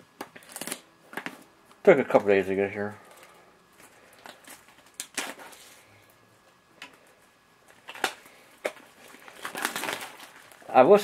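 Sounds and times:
packaging clicks and rustles: 0.2 - 1.5, 3.0 - 5.8, 7.6 - 11.0.

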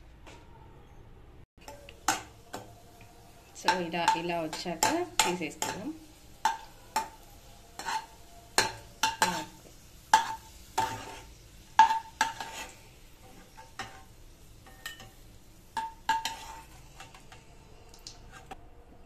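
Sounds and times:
steel ladle scraping metal pan: 3.6 - 15.2, 15.8 - 17.4, 18.2 - 18.6.

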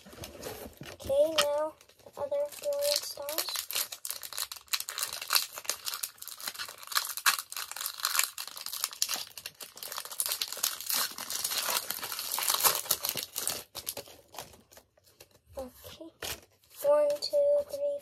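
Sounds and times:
foil wrapper crinkling and tearing: 1.2 - 15.4.

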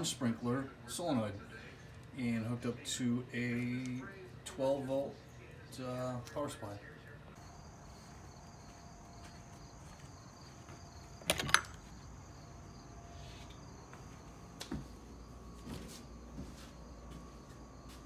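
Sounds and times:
crickets chirping: 7.4 - 18.0.

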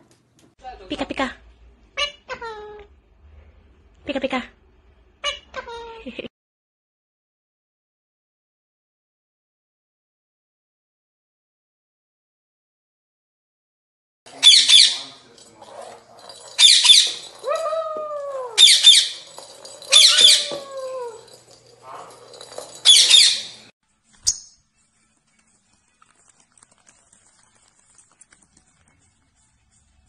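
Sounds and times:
parrots screeching: 5.2 - 6.0, 14.4 - 15.2, 16.3 - 22.1, 22.8 - 23.6.

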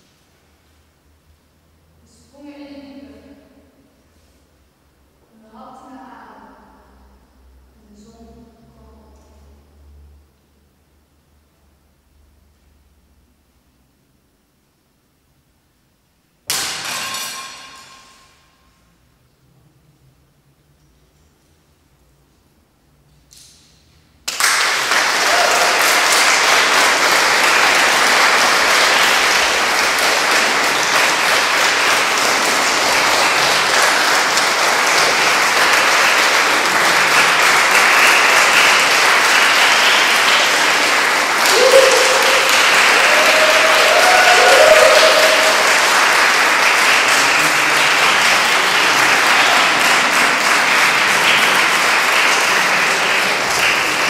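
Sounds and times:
audience applauding: 24.3 - 54.0
crowd calling out: 25.0 - 35.8, 40.1 - 51.6.

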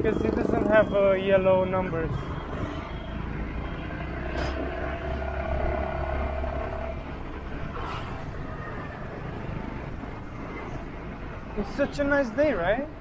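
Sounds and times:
scooter engines running: 0.0 - 7.7
road noise: 0.0 - 13.0.

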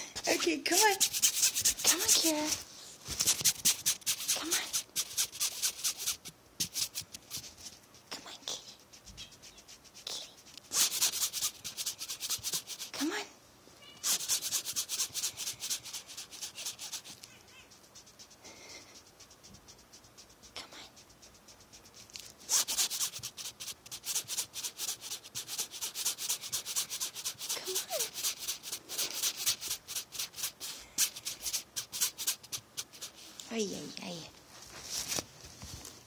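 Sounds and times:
kitten claws scratching fabric: 0.2 - 13.2, 14.0 - 33.9.

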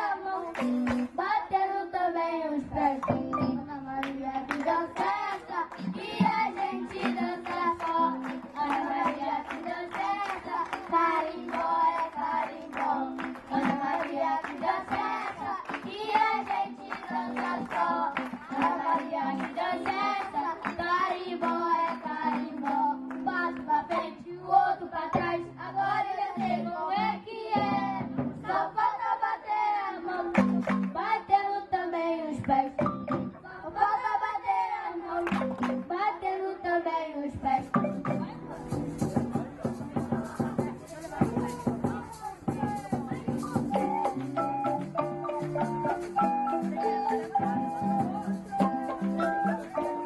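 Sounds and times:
children singing into microphones: 0.0 - 50.0
drums and live instruments: 5.8 - 11.9, 27.7 - 28.6, 37.5 - 50.0.

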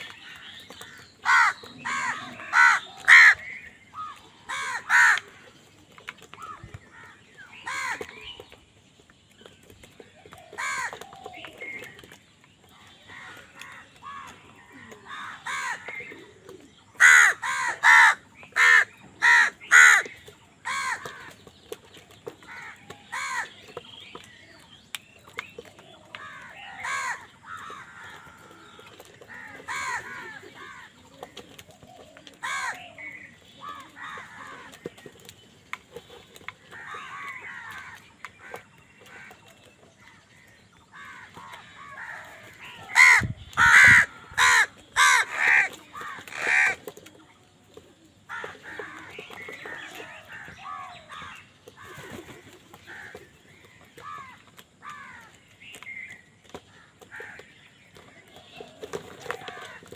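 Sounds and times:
crows cawing: 0.0 - 5.6, 6.3 - 8.4, 10.4 - 11.3, 13.0 - 21.5, 22.4 - 23.6, 25.9 - 31.4, 32.4 - 35.0, 36.6 - 47.0, 48.3 - 55.4, 56.6 - 57.6.

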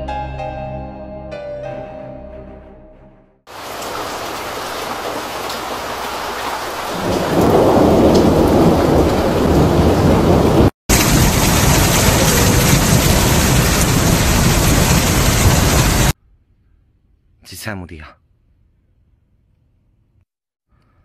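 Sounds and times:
hail and rain pelting: 3.5 - 16.2.

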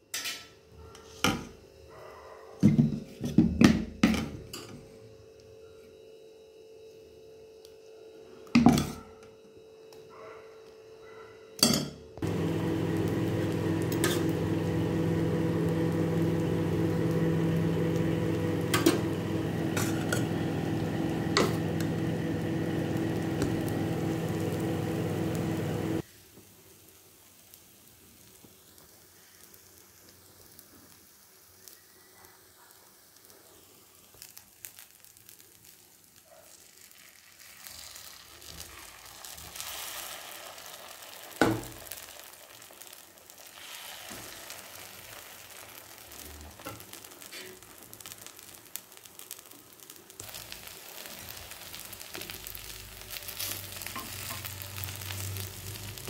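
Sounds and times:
loud steady hum with hiss: 11.6 - 32.1, 38.8 - 56.0.

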